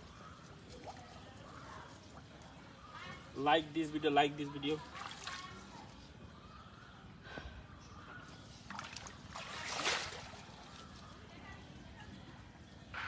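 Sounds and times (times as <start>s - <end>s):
water splash: 8.7s - 10.6s
water sloshing: 8.7s - 11.3s.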